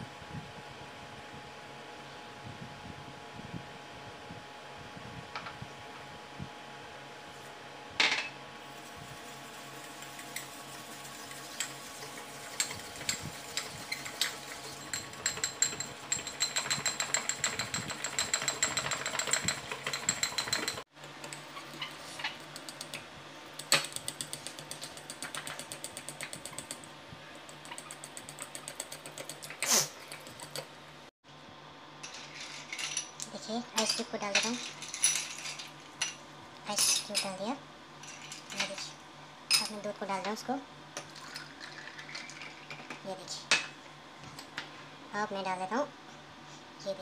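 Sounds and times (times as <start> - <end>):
fan humming: 0.0 - 47.0
fork whisking in glass bowl: 8.7 - 20.8.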